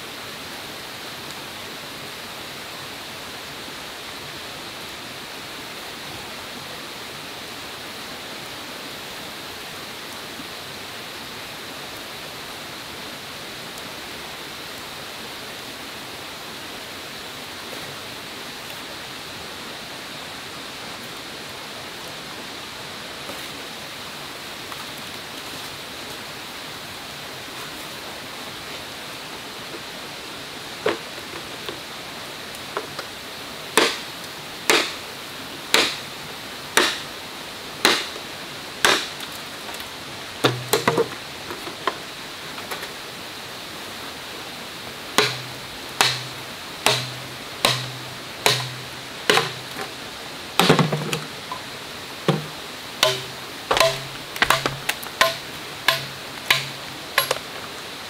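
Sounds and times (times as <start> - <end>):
steady background hiss: 0.0 - 58.0
machete chopping bamboo: 33.8 - 34.0, 34.7 - 35.0, 35.7 - 36.0, 36.8 - 37.1, 37.8 - 38.2, 38.8 - 39.2, 40.4 - 41.1, 45.2 - 49.9, 50.6 - 51.3, 52.3 - 57.5.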